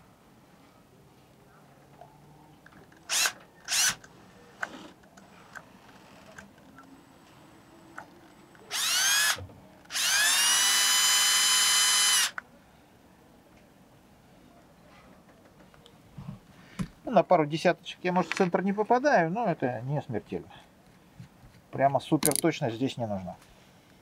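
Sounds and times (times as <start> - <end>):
cordless drill whining: 3.1 - 4.0, 8.6 - 12.4.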